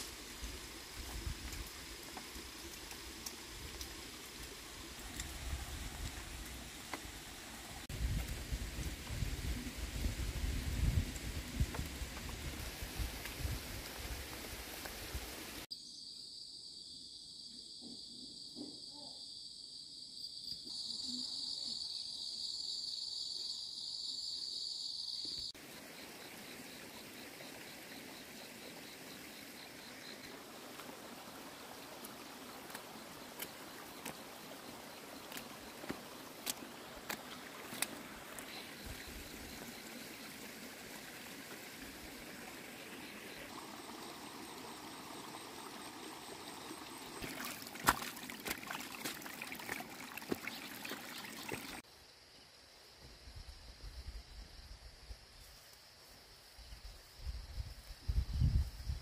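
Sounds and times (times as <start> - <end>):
outdoor hiss: 0.0 - 15.7, 25.4 - 51.8
insects chirring: 0.0 - 59.0.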